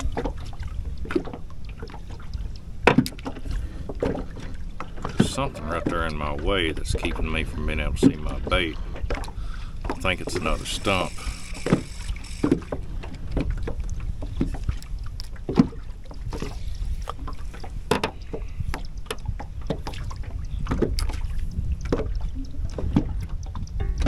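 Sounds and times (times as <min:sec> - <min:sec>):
wind and water rumble: 0:00.0 - 0:24.0
fishing reel clicks and knocks: 0:10.4 - 0:12.8.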